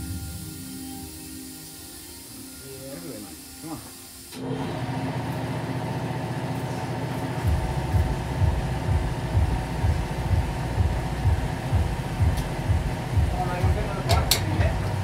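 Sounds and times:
engine running: 4.4s - 15.0s
low rhythmic pulsing: 7.4s - 15.0s.

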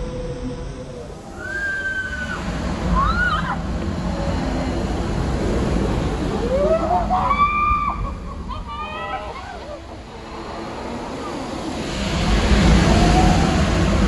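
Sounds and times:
steady rushing noise: 0.0s - 14.0s
riders screaming: 1.3s - 3.6s, 6.4s - 9.6s.

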